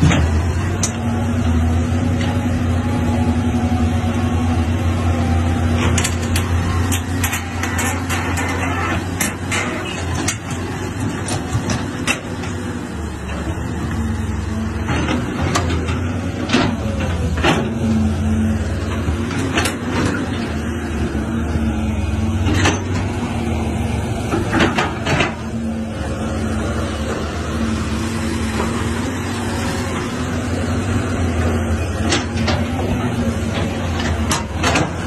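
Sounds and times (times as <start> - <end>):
excavator diesel engine running: 0.0 - 35.0
metal clanks and knocks: 5.8 - 12.6.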